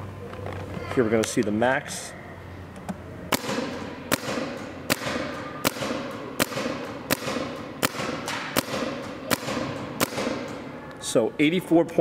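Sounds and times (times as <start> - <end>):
paintball marker firing sharp pops: 3.3 - 10.6.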